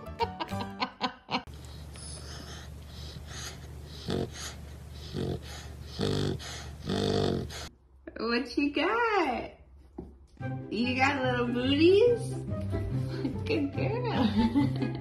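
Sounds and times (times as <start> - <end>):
puppy snoring: 1.8 - 7.7.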